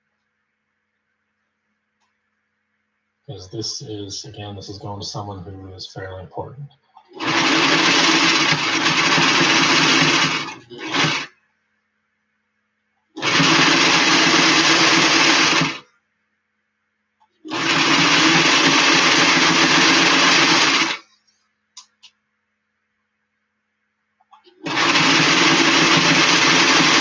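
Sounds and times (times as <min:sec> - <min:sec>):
sewing machine stitching: 0:07.0 - 0:11.3, 0:13.2 - 0:15.8, 0:17.5 - 0:21.1, 0:24.4 - 0:27.0.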